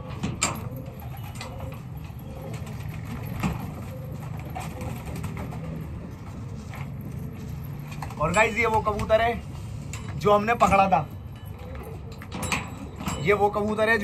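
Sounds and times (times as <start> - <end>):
pigeons cooing: 0.0 - 8.2, 11.4 - 13.2.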